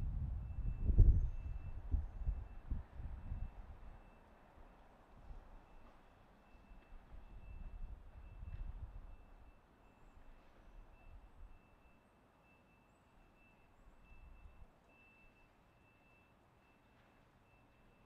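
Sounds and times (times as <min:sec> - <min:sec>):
faint high-pitched electronic tone: 0:05.6 - 0:18.0.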